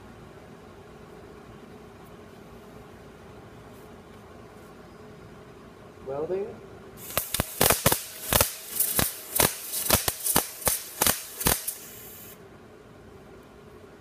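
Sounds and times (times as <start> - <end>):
welding arc crackling hiss: 7.0 - 12.4
welding arc pops: 7.0 - 12.4.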